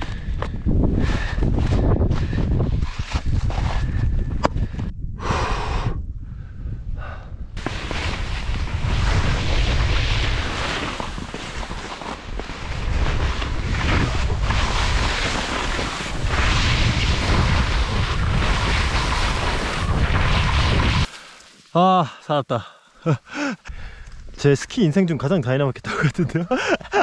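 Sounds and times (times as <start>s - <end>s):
wind on microphone: 0.0s - 21.1s
skis scraping on snow: 7.6s - 21.3s.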